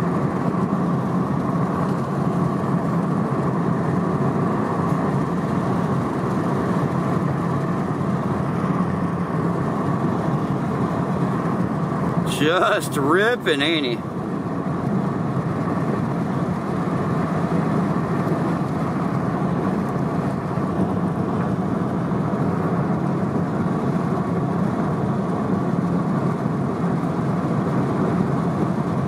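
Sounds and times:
car engine and tyre noise inside cabin: 0.0s - 29.0s.

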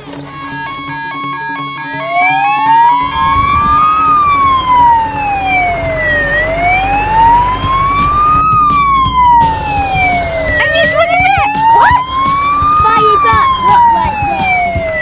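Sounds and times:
fire truck siren wailing: 0.0s - 15.0s
low rumble: 2.7s - 11.3s.

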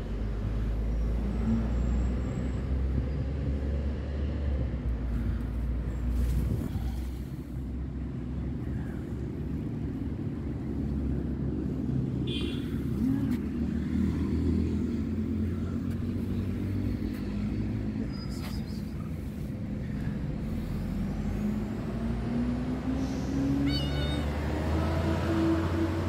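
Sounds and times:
low rumble of motor traffic: 0.0s - 26.0s.

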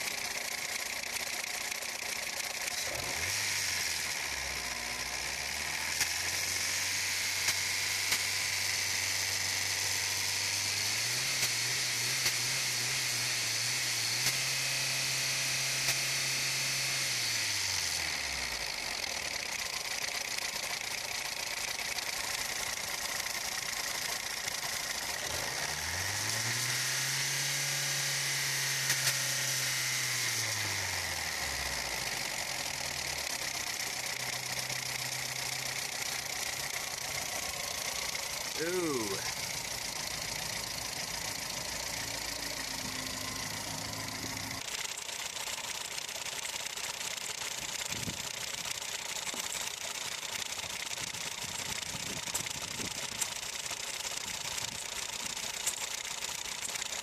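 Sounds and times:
car engine idling: 0.0s - 13.3s, 14.6s - 26.8s, 27.4s - 57.0s.

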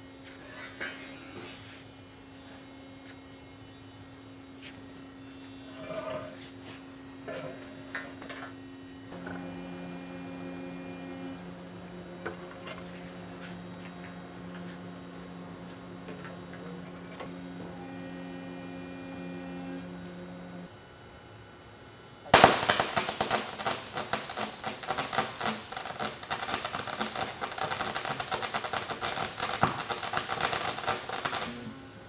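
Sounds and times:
machine hum: 1.2s - 32.0s
loud rapid welding crackling: 22.3s - 31.7s.

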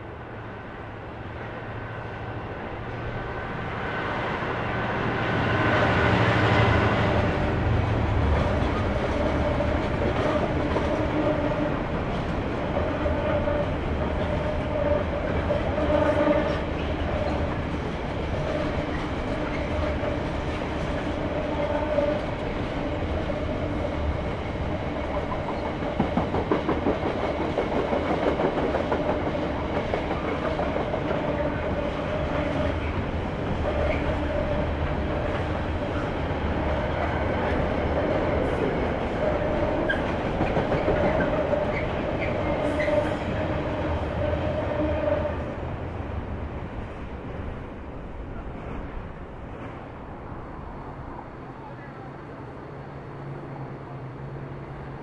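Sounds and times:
freight train rumble and hum: 0.0s - 55.0s
train wheels clicking over rail joints: 24.5s - 34.1s, 37.0s - 43.8s.

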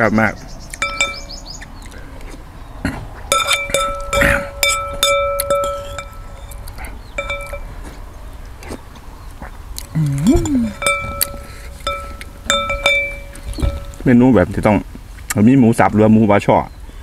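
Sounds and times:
metal spoon clinking against bowl: 0.8s - 1.4s, 3.3s - 7.8s, 10.7s - 14.1s.

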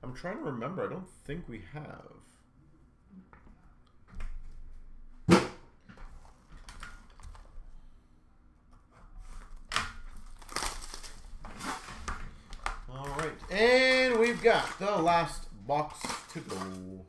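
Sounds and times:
plastic shrink-wrap crinkling and tearing: 9.4s - 17.0s.

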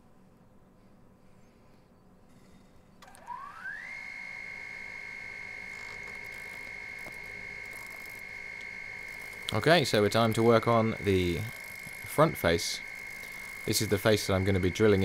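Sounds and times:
wood lathe motor whine: 3.0s - 15.0s.

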